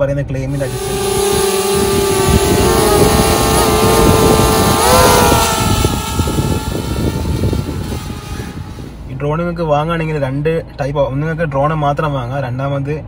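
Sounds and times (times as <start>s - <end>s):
drone propellers whining: 0.5s - 9.2s
rough gusty rumble: 0.5s - 10.1s.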